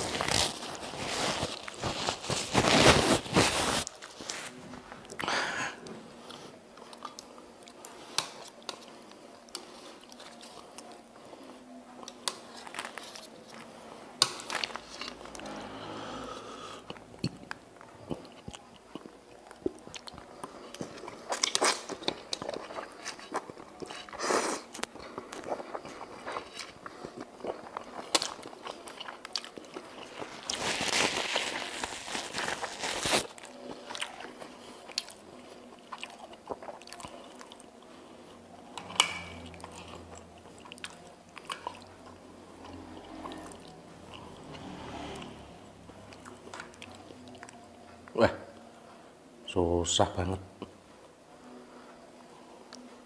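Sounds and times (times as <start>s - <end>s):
chewing noodles: 16.9s - 45.3s.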